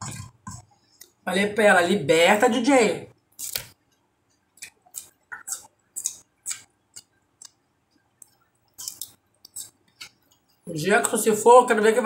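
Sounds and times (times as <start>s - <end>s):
crisp chewing crunches: 3.4s - 3.7s, 8.8s - 9.8s.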